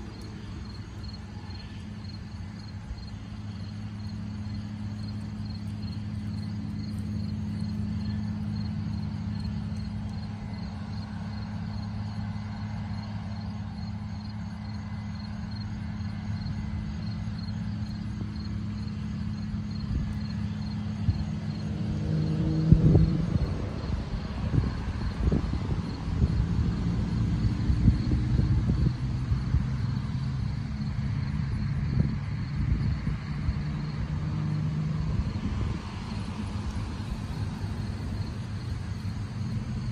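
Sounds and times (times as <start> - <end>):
distant combine harvester engine drone: 0.0 - 39.9.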